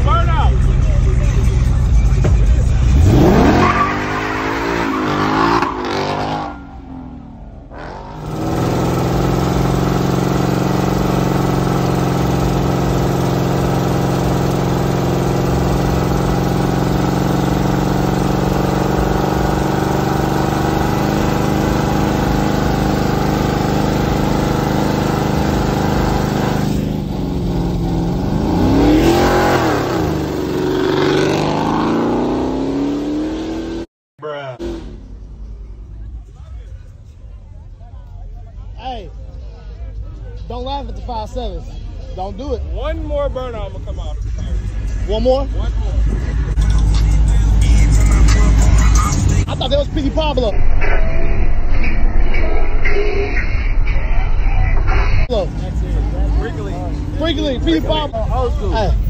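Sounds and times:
car engine revving hard: 2.9 - 33.9.

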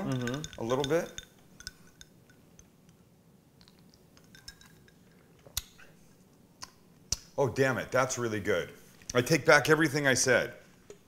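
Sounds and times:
drinking glass clinking: 0.0 - 2.4.

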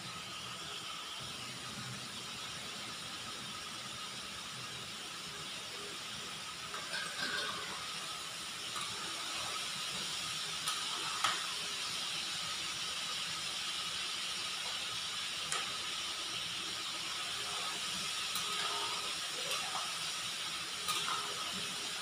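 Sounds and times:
chicken frying in hot oil: 0.0 - 22.0
metal utensil clinking on pan: 6.7 - 7.9, 20.8 - 21.8.

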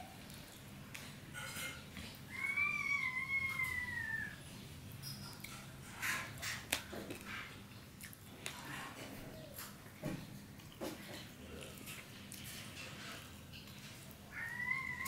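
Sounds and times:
cat meowing: 2.3 - 4.4, 14.3 - 15.0
wet chewing smacks: 7.9 - 12.6.

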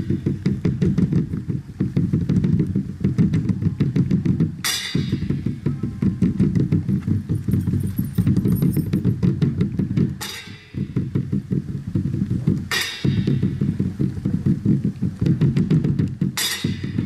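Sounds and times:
bass drum roll: 0.0 - 17.0
cymbal crash: 10.2 - 11.0, 16.4 - 17.0.

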